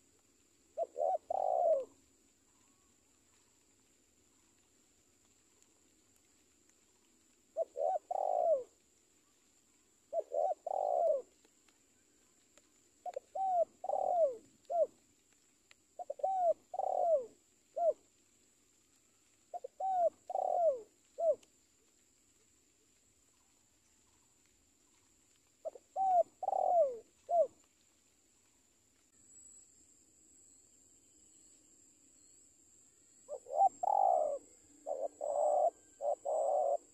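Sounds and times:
dove cooing: 0.8 - 2.0, 7.5 - 8.8, 10.1 - 11.4, 13.0 - 15.0, 16.0 - 18.1, 19.5 - 21.4, 25.6 - 27.6, 33.3 - 36.9.

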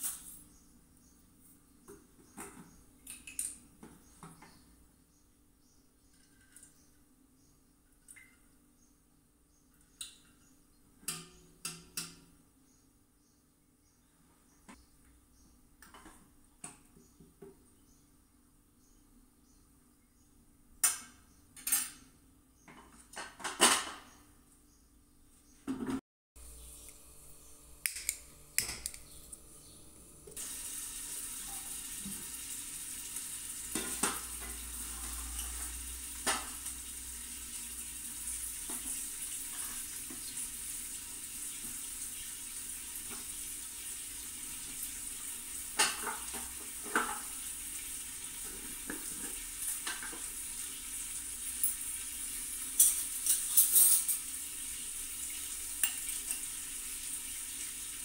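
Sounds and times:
steady kitchen hiss: 0.0 - 1.0, 26.4 - 58.0.

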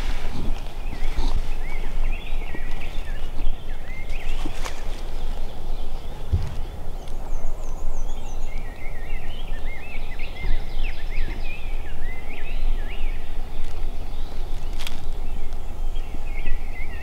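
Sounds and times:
songbird chirping: 0.0 - 17.0
wind rumble on microphone: 0.0 - 17.0
microphone bump: 6.2 - 7.2.

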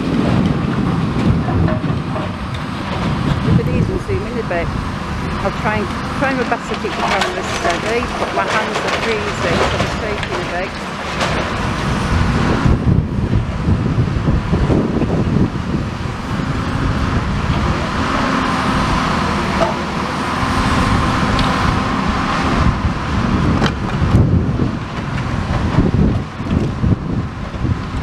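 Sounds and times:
diesel excavator working: 0.0 - 28.0
traffic rumble: 0.0 - 28.0
debris falling knocks: 6.7 - 12.1.

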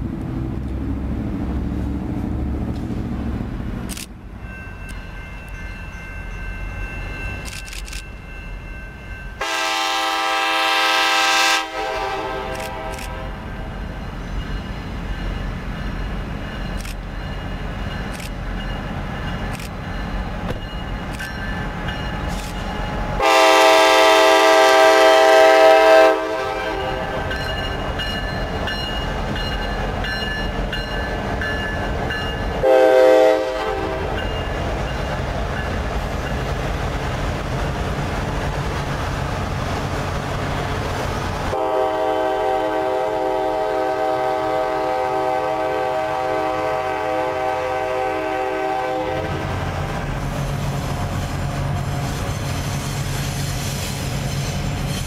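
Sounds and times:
diesel engines rumbling: 0.0 - 4.4
train wheels on rails: 0.0 - 55.0
locomotive air horn blasts: 9.4 - 13.5, 23.2 - 27.2, 32.6 - 34.2, 41.5 - 49.5.

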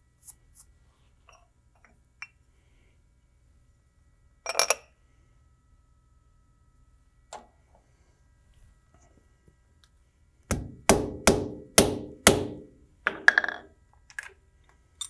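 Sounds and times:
hammer striking metal workpiece: 10.5 - 13.6.

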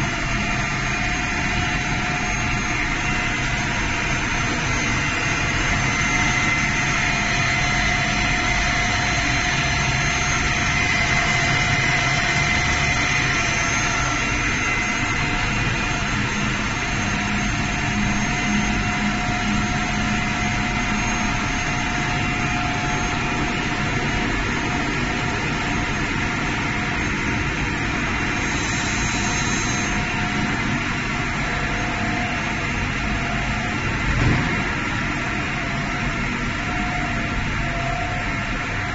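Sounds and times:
machine drone with whining tones: 0.0 - 38.9
short thump: 34.1 - 34.9.

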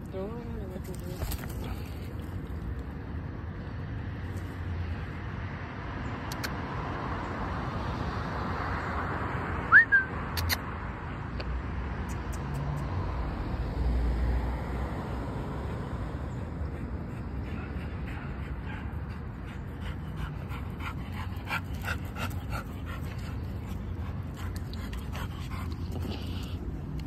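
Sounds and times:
distant road traffic: 0.0 - 27.0
sharp rising whistle: 9.7 - 10.2.

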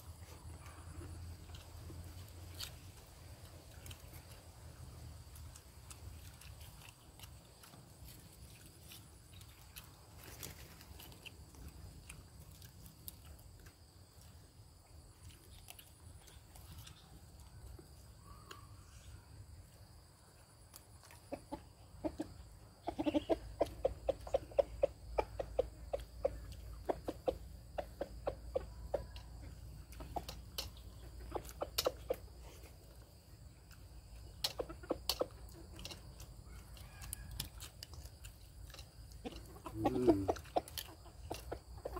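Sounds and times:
faint eating clicks: 0.1 - 18.7, 24.1 - 41.9
chicken clucking: 15.1 - 41.9.

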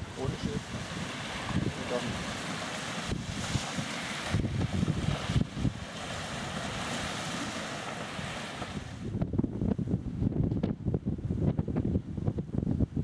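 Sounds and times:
waves rushing: 0.0 - 9.2
wind buffeting microphone: 0.0 - 13.0.

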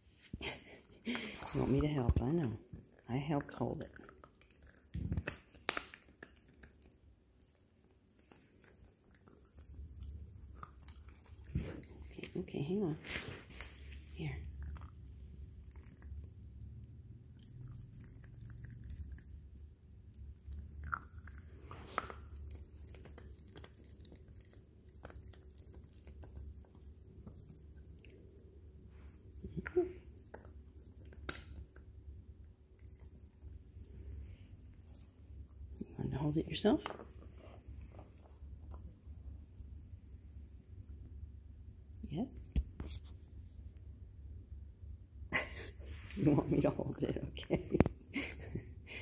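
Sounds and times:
dog gnawing on a chew: 3.8 - 12.2, 20.2 - 28.4
teeth clicking on a chew: 3.9 - 7.6, 17.4 - 19.4, 20.1 - 28.2.

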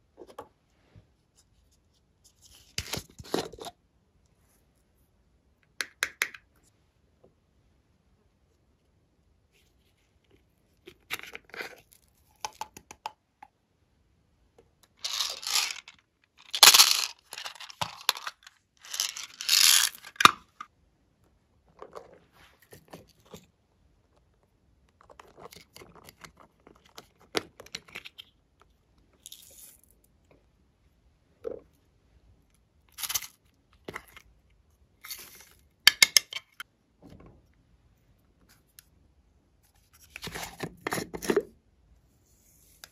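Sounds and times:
glitter rustling and crackling: 15.0 - 20.2.

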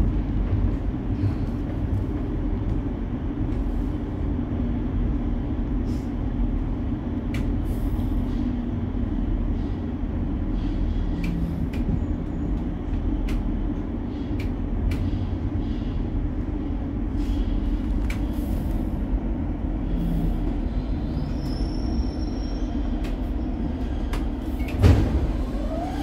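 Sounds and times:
wheels rumbling on rails: 0.0 - 26.0
track clicks and squeaks: 20.5 - 26.0.

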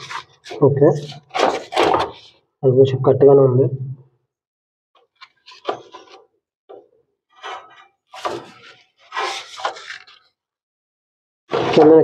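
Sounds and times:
rough scraping strokes: 7.4 - 10.3.

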